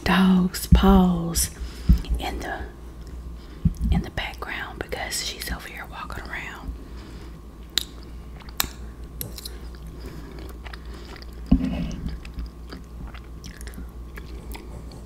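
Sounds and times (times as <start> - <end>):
person chewing wet food: 7.0 - 15.0.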